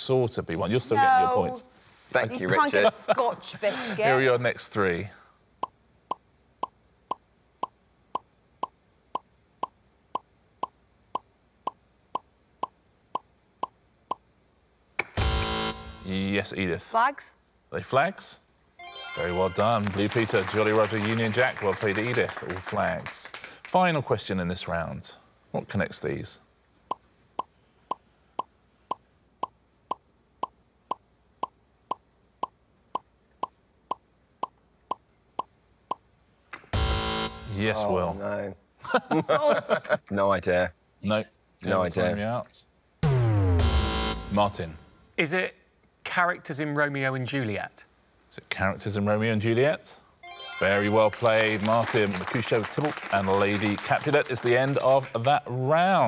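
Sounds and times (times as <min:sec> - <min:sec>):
short electronic blips: 0:15.2 - 0:16.1, 0:36.8 - 0:37.6, 0:43.0 - 0:45.0.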